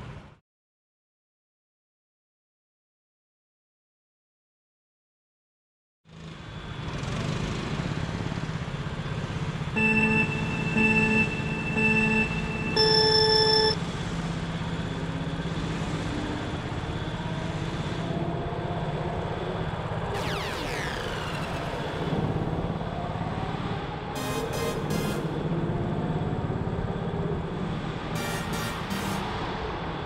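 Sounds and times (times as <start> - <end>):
go-kart engine running: 6.1 - 10.7
countdown beeps: 9.8 - 13.8, 28.2 - 29.3.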